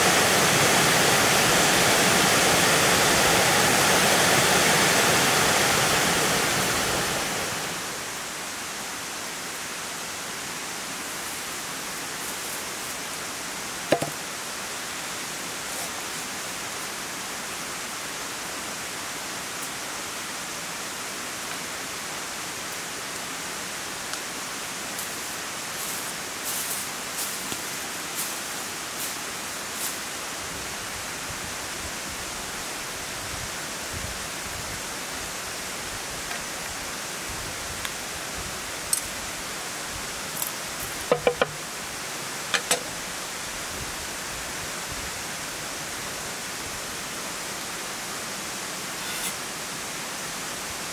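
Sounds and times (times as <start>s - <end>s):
flowing water: 0.0s - 50.9s
light clicks and knocks: 41.1s - 41.6s.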